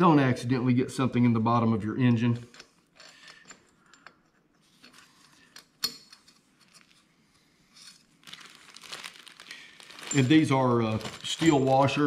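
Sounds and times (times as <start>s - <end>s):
metal bolts and washers clinking: 10.0s - 12.0s.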